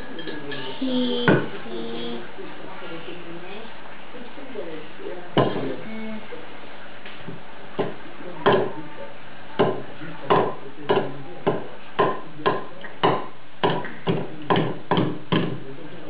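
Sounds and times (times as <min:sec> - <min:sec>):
steady background hum: 0:00.0 - 0:16.0
sharp knocks: 0:07.3 - 0:08.8, 0:09.6 - 0:15.6.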